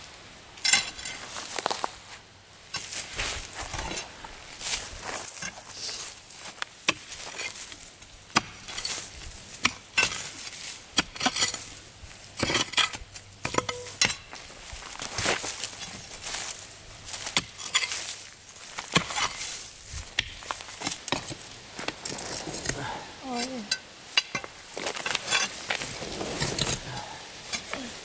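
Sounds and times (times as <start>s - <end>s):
scraping through dirt: 0.6s - 28.0s
metal clinking against stone: 12.4s - 14.3s, 17.4s - 18.1s.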